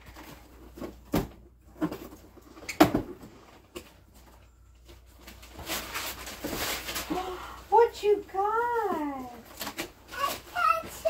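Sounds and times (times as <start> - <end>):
cardboard flaps rustling: 0.0 - 7.2.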